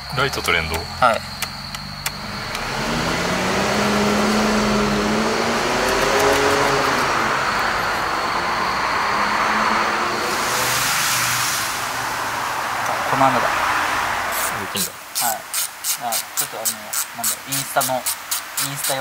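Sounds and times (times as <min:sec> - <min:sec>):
car engine running: 0:00.0 - 0:14.8.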